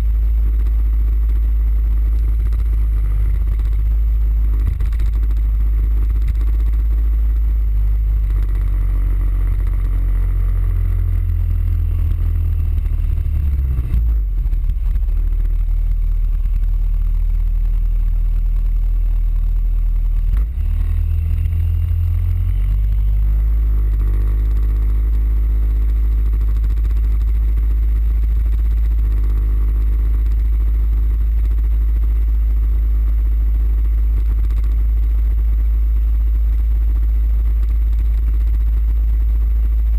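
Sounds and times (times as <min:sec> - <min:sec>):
scooter engine drone: 0:00.0 - 0:39.9
wind and road noise rumble: 0:01.3 - 0:07.5, 0:08.1 - 0:17.7, 0:33.8 - 0:34.8.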